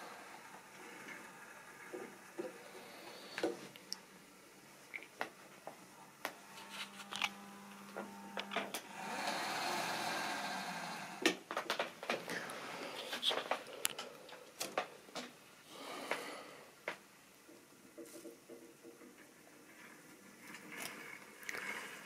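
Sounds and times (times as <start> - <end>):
electric locomotive motor whirring: 6.4 - 11.3.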